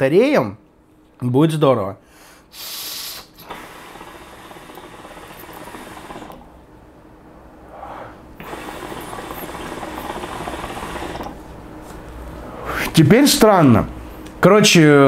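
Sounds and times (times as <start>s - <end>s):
hookah water bubbling: 2.6s - 6.5s, 8.4s - 11.4s.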